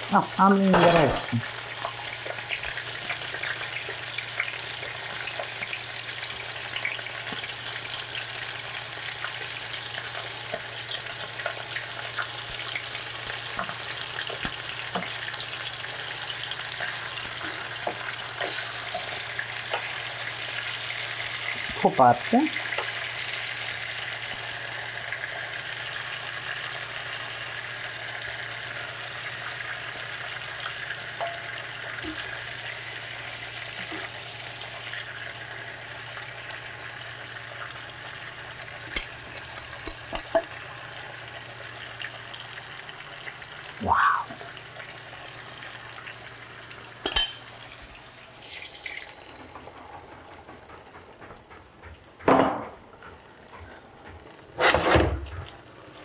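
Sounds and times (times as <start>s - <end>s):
chicken sizzling in a pan: 0.0s - 50.9s, 52.8s - 56.0s
metal spoon clinking on dishes: 0.7s - 1.4s, 39.0s - 40.5s, 47.0s - 47.5s.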